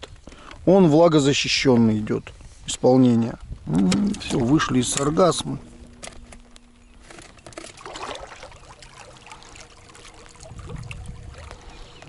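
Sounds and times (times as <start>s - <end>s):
faint motor whine: 3.7s - 12.0s
water trickling and splashing: 7.1s - 12.0s.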